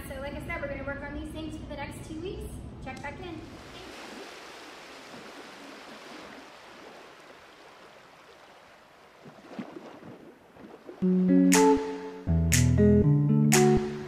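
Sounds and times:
faint outdoor ambience: 0.0s - 12.4s
strummed guitar music: 11.0s - 14.0s.

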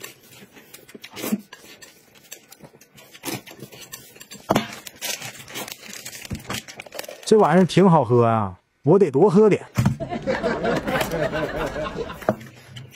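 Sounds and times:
slurping and chewing: 0.0s - 7.2s.

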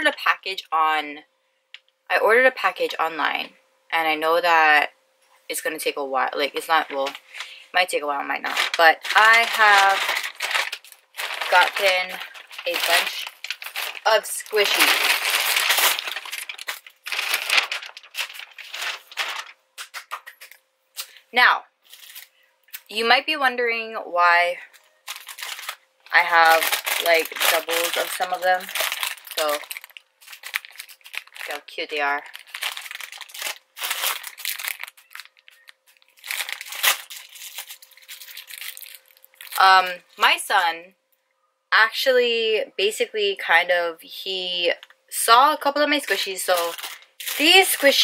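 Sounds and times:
plastic wrappers crinkling: 6.5s - 21.2s, 21.8s - 22.9s, 24.7s - 40.4s, 46.0s - 48.0s.

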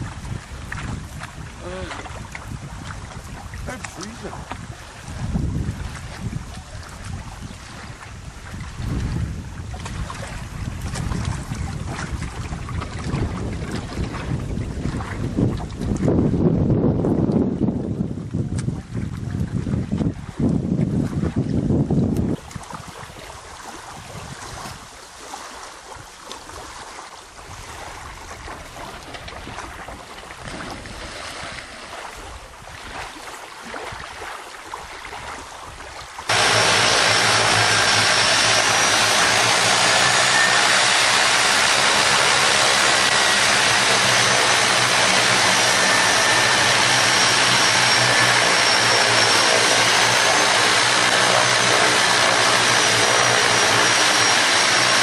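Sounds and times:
propeller plane engine droning: 0.0s - 18.2s, 36.2s - 55.0s
wind noise: 0.0s - 25.0s, 35.1s - 55.0s.

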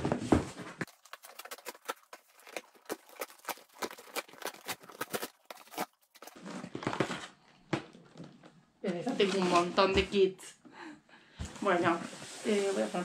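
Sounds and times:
cardboard box tearing: 0.8s - 7.3s.

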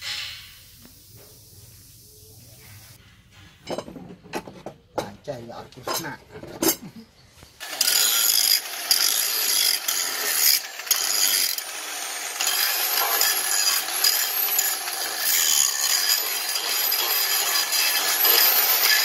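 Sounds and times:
angle grinder grinding metal: 7.6s - 19.0s.

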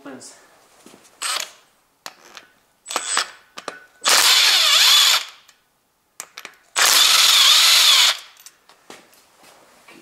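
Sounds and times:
electric power driver spinning: 1.2s - 1.6s, 4.0s - 5.5s, 6.8s - 8.4s.

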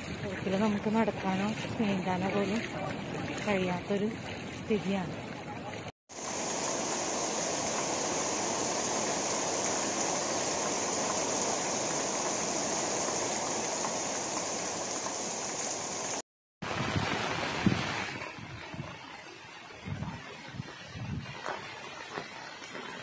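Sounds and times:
heavy rain on trees: 5.6s - 23.0s
wind buffeting microphone: 16.6s - 21.8s.

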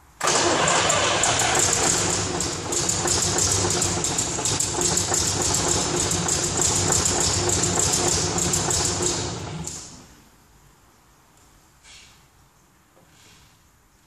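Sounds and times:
diesel engine idling: 0.2s - 9.8s.

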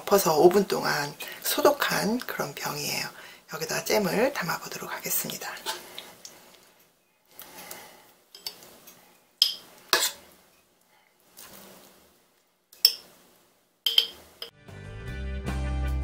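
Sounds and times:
spoon clinking on metal: 9.4s - 10.1s, 12.8s - 13.0s, 13.9s - 14.5s
spoon scraping jam in pot: 9.4s - 10.3s.

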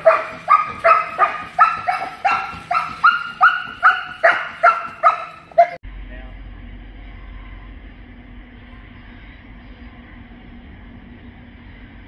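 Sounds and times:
dog barking rapidly: 0.0s - 5.8s.

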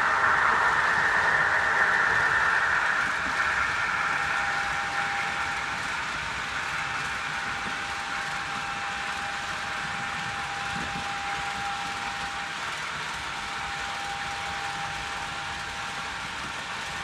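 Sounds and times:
model train wheels on rails: 0.0s - 17.0s
thin steady whine: 0.0s - 17.0s.

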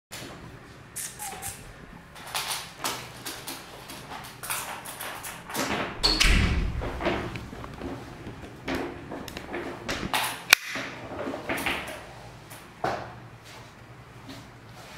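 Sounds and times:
heavy thump: 5.8s - 9.0s.

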